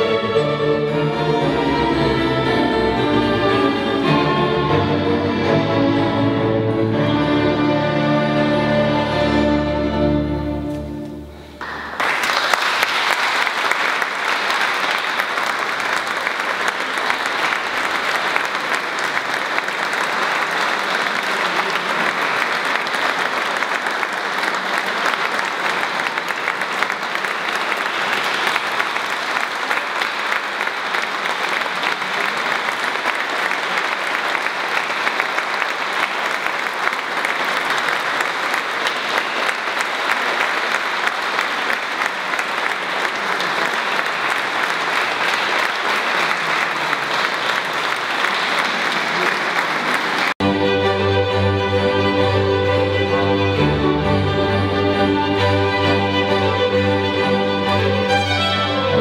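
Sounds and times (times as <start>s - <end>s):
orchestra holding a chord: 0.0s - 11.6s
audience applause: 11.6s - 59.0s.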